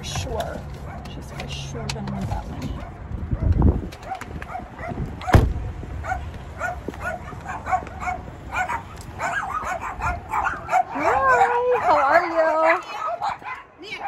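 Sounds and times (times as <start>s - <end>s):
dog yapping: 2.8s - 5.4s, 6.0s - 14.0s
sharp thump: 5.2s - 5.7s.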